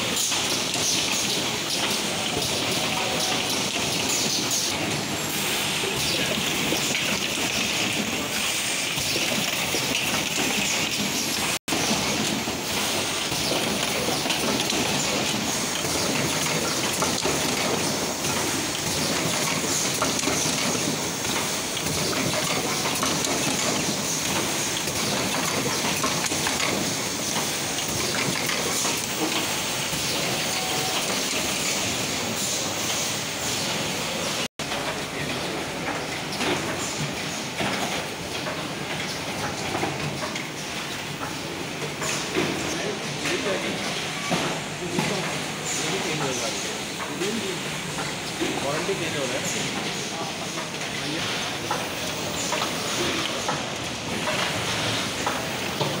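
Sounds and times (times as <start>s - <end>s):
machine hiss: 0.0s - 34.5s
clatter of mechanical clicks: 13.3s - 29.5s.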